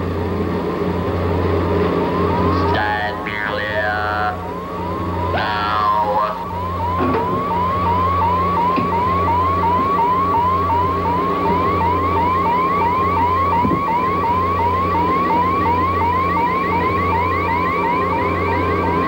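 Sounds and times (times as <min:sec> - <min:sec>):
low electronic hum: 0:00.0 - 0:19.0.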